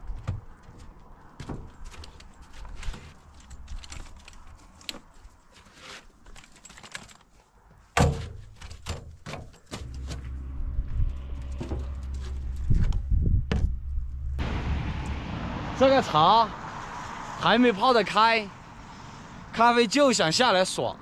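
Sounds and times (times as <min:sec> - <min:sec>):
low rumble: 0:09.8 - 0:15.9.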